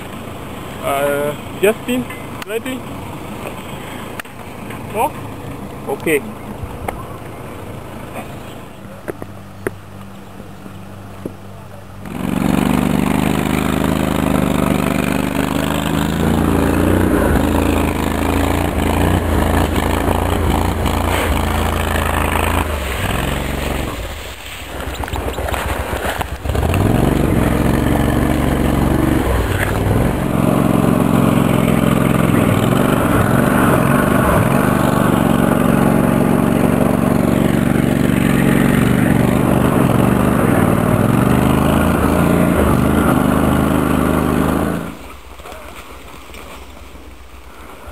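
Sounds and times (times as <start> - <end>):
atv engine running under load: 0.0 - 9.7, 12.0 - 45.6.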